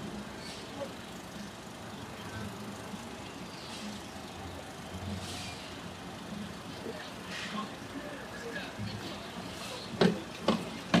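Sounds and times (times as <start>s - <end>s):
hissing rustles: 5.0s - 6.5s.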